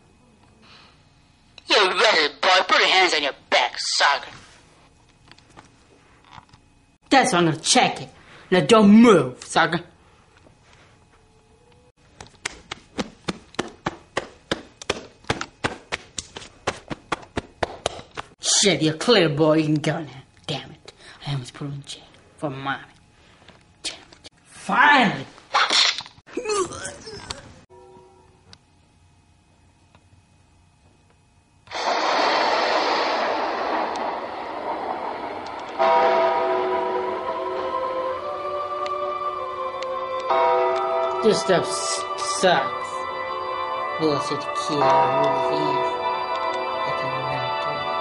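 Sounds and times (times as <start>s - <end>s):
hands patting clothing: 12.1s - 18.3s
loud rushing whoosh: 31.7s - 37.1s
music with sustained tones: 31.8s - 48.0s.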